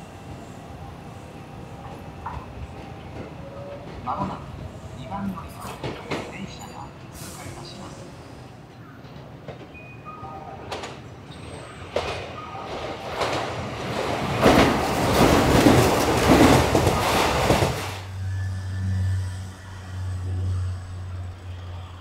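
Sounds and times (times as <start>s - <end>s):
electric train passing: 0.0s - 22.0s
wheels clattering over rail joints: 10.7s - 18.1s.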